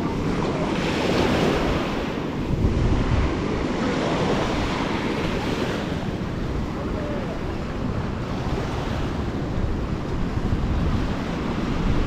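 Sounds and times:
small waves breaking on sand: 0.0 - 12.0
wind rumbling on microphone: 0.0 - 12.0.

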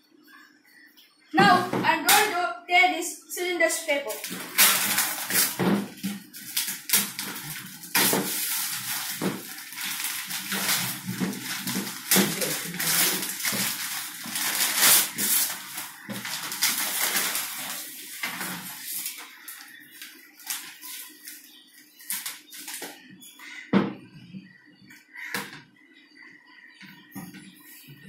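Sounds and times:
paper tearing and crumpling: 4.1 - 19.7.

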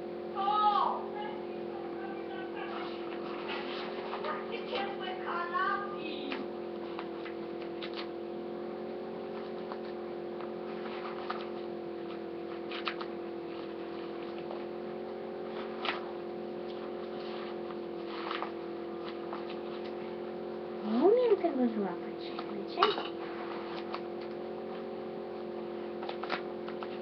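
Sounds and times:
steady hum of even tones: 0.0 - 27.0.

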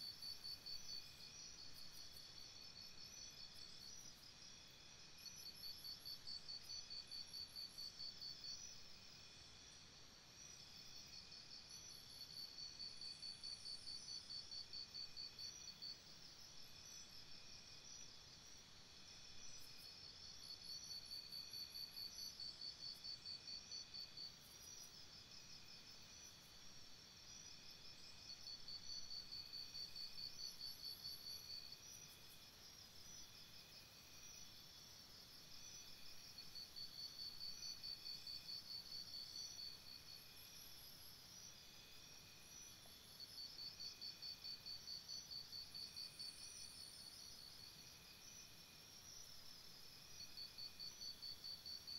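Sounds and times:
high insect drone: 10.4 - 51.9.

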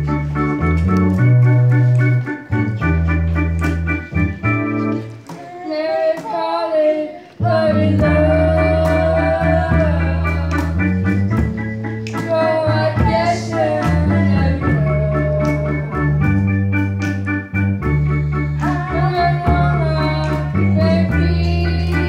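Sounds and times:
organ-like keyboard chords: 0.0 - 22.0
woman singing into microphone: 5.3 - 11.1, 12.2 - 16.2, 18.3 - 22.0.

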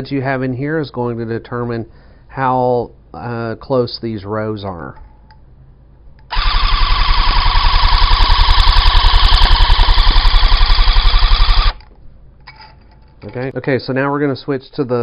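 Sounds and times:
tufting gun stitching: 6.3 - 11.8.

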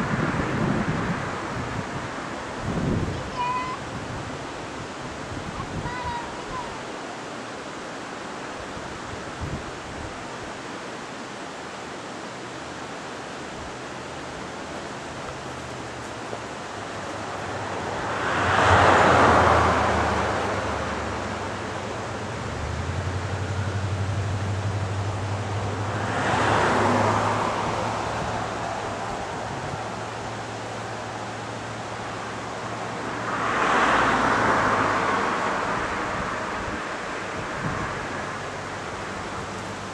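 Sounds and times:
outdoor rushing noise: 13.4 - 39.9.

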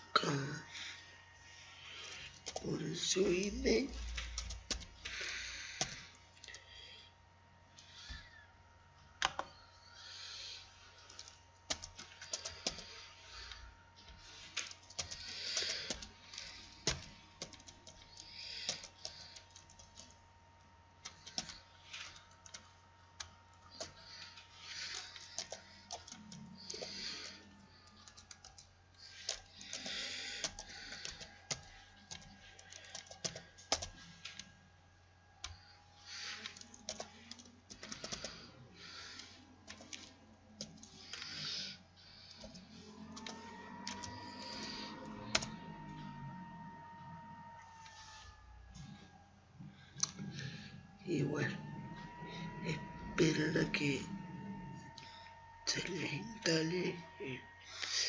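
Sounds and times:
low electrical hum: 0.0 - 58.0
typing on computer keyboard: 2.4 - 2.6, 3.9 - 6.6, 9.2 - 20.2, 21.0 - 34.5, 35.4 - 46.0.

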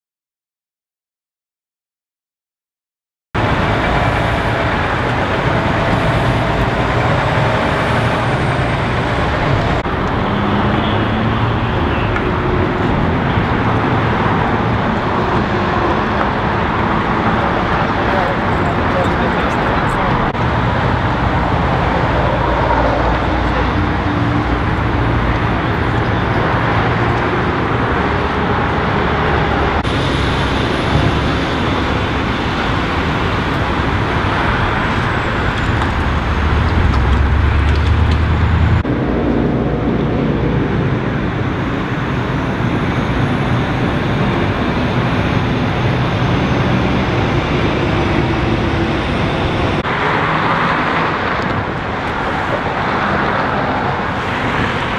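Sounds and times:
freeway traffic rumble: 3.4 - 54.9
heavy low engine rumble: 3.4 - 54.9.

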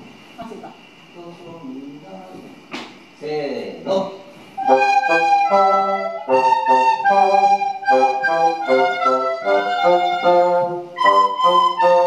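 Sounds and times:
bassoon: 4.6 - 12.0
children playing recorders: 4.6 - 12.0.

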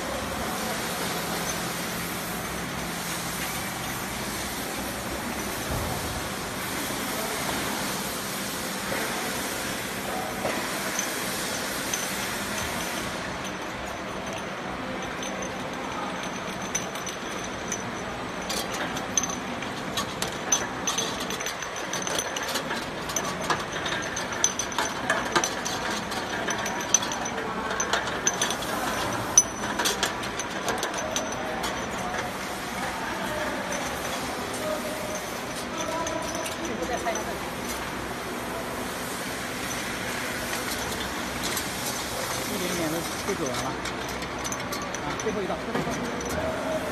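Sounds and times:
bottle labeling machine running: 0.0 - 46.9.

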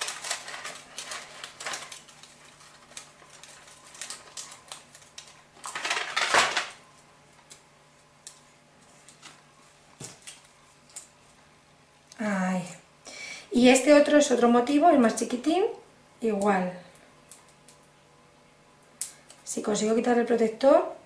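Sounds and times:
paper crinkling: 0.0 - 11.2.

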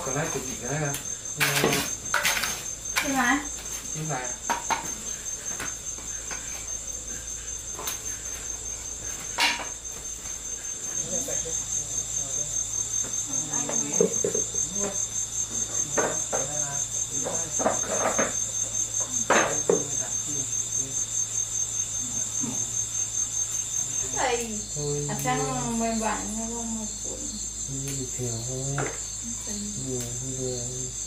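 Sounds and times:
insects trilling: 0.0 - 31.0
soft scattered knocks: 4.4 - 6.5, 17.2 - 18.4.

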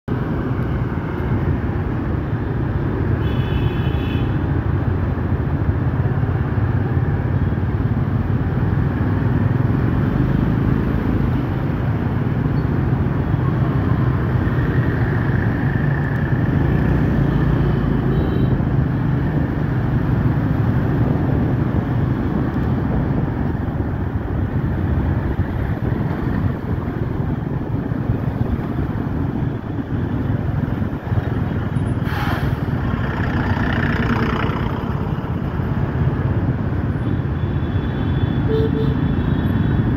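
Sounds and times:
engine and road noise: 0.0 - 39.9
traffic of scooters and cars: 0.1 - 39.9.

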